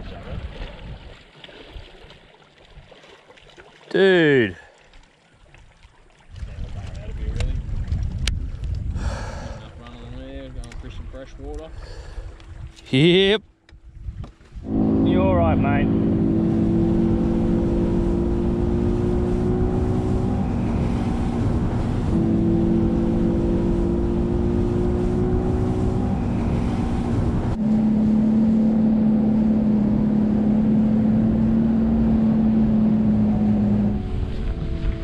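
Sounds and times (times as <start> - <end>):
outboard motor running: 14.6 - 35.0.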